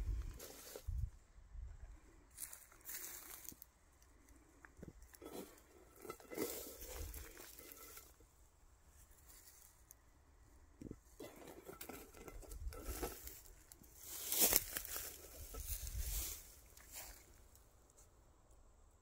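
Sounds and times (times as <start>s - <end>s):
dry brush rustling: 0.1s - 1.1s, 2.3s - 3.6s, 5.1s - 8.2s, 9.0s - 9.9s, 11.1s - 18.1s.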